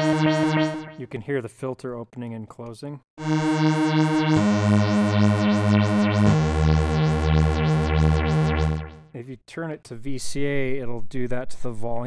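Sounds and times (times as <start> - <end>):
synthesizer low notes with wobble: 0.0 - 1.0, 3.2 - 9.2.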